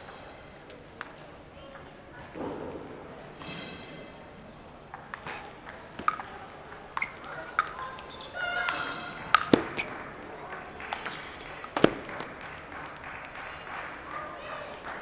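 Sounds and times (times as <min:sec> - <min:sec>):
ping pong ball clicking off bats: 0:00.0 - 0:02.7, 0:04.9 - 0:13.6.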